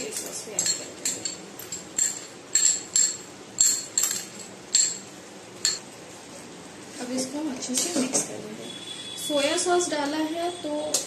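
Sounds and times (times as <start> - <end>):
metal spoon clinking on cup: 0.2 - 5.8.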